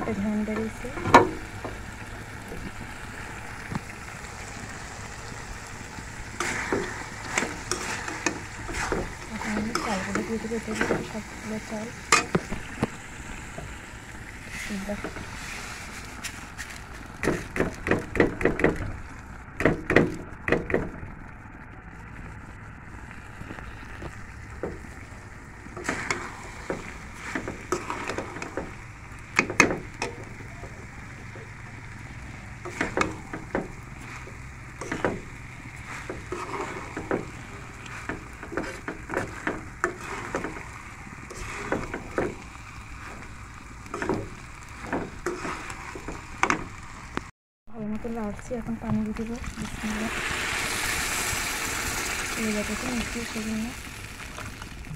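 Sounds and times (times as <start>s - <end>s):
faint sizzle: 0.0s - 18.2s, 21.0s - 54.9s
metal spoon scraping a pan: 6.4s - 11.2s, 27.2s - 28.7s, 34.0s - 35.2s, 35.8s - 40.6s, 41.3s - 42.3s, 44.0s - 46.6s
rice pouring into a pan: 14.2s - 17.2s, 49.6s - 54.9s.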